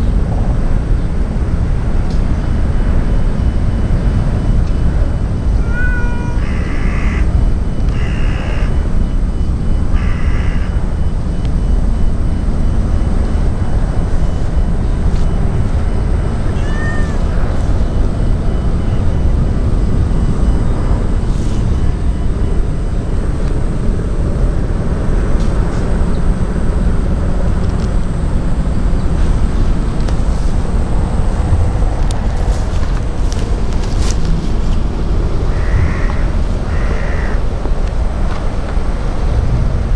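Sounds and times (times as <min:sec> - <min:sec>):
low background rumble: 0:00.0 - 0:39.9
cat meowing: 0:05.6 - 0:07.3, 0:16.4 - 0:17.3.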